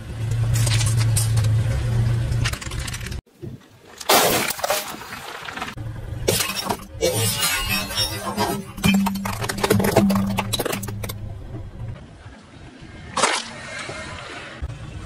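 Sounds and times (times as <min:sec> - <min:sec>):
car engine humming: 0:05.8 - 0:07.1, 0:08.7 - 0:12.1.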